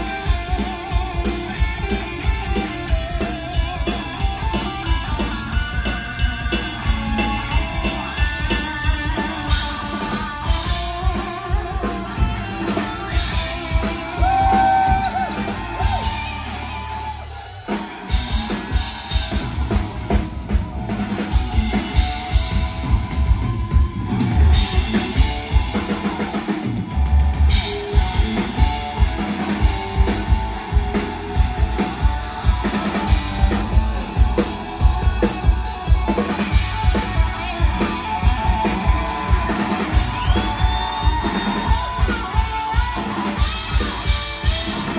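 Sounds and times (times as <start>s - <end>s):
driving drum beat: 0.0s - 44.9s
live rock band playing: 0.0s - 44.9s.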